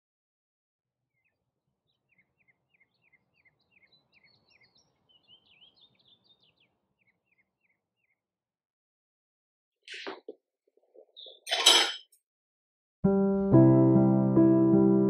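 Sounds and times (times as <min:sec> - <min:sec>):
bird chirping: 0:01.1 - 0:08.2, 0:11.0 - 0:11.6
high bird twittering: 0:02.1 - 0:08.2.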